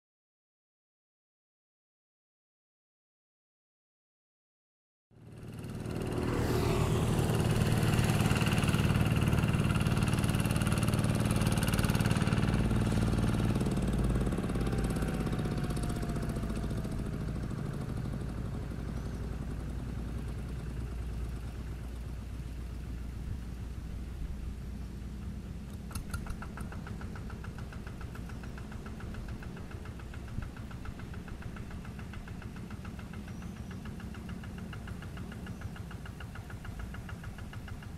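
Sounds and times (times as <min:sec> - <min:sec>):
diesel tractor engine running: 0:05.2 - 0:37.9.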